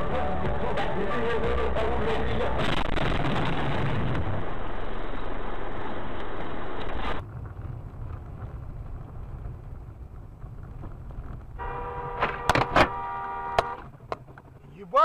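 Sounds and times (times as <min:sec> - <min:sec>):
car road and engine rumble: 0:00.0 - 0:15.0
two-tone car horn: 0:11.6 - 0:13.9.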